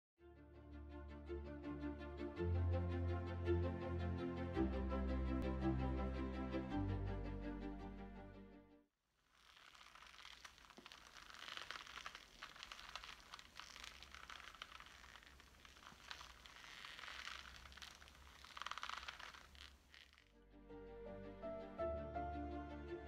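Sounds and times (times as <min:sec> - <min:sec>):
rope and leather creaking: 0:09.2 - 0:20.3.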